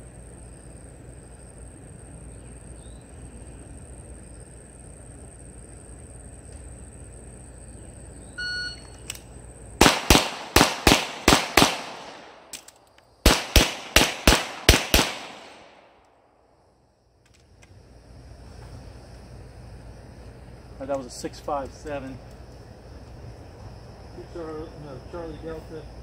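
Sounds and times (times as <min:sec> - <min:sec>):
pistol shots: 0:09.8 - 0:16.0.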